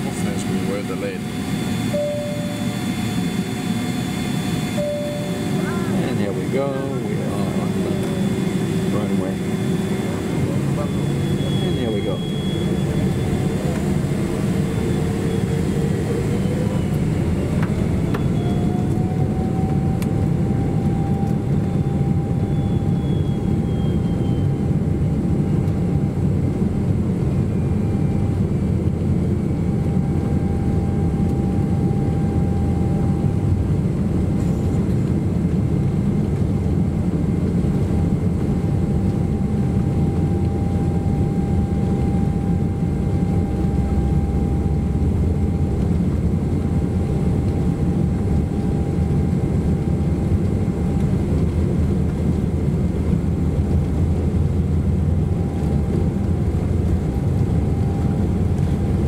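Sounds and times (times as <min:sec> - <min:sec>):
jet engines spooling up: 0:00.0 - 0:25.9.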